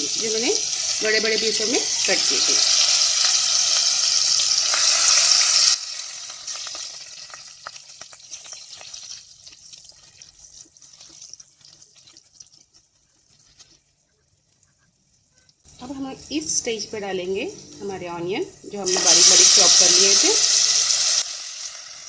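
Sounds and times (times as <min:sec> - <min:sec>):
chillies sizzling in hot oil: 0:00.0 - 0:22.0
faint scattered crackles: 0:06.4 - 0:16.0.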